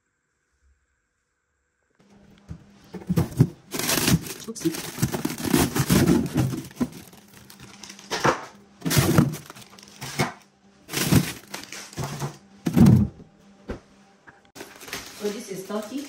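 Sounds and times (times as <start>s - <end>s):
rustling and handling noises: 2.1s - 13.2s, 14.3s - 16.0s.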